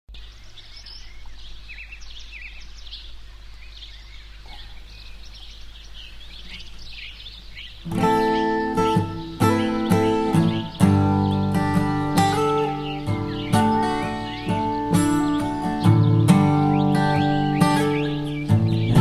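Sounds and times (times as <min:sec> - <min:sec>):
birds chirping: 0:00.1 - 0:19.0
acoustic guitar music: 0:07.8 - 0:19.0.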